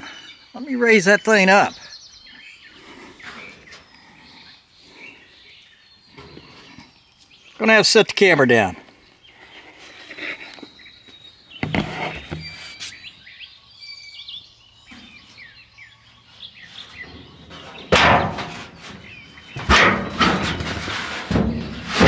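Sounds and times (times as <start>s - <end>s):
birds chirping: 0.0s - 22.0s
sharp knocks: 17.9s - 18.7s, 19.6s - 22.0s.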